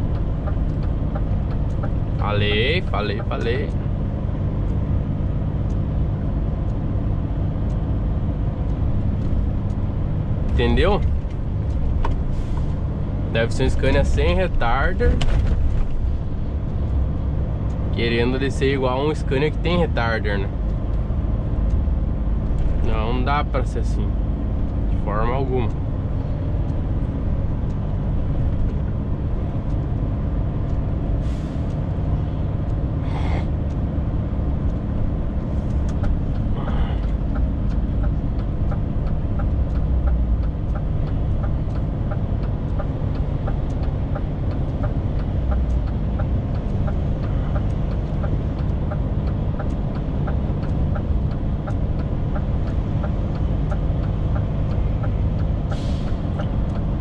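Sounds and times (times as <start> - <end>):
light regular ticking: 0.0 - 57.0
truck diesel engine running: 0.0 - 57.0
air brake hisses: 31.2 - 31.7, 55.7 - 56.3.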